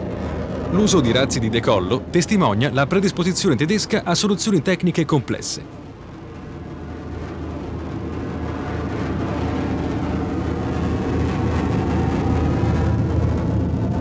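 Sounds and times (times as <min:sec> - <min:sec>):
jet aircraft taking off: 0:00.0 - 0:14.0.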